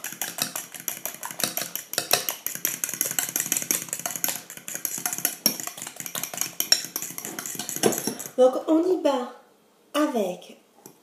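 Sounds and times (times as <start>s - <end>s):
fork clicking against glass bowl: 0.0s - 8.3s.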